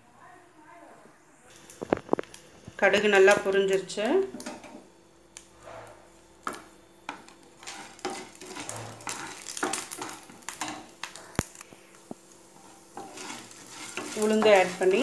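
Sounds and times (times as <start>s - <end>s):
faint oil sizzle: 1.4s - 15.0s
wooden spatula scraping pan: 5.6s - 15.0s.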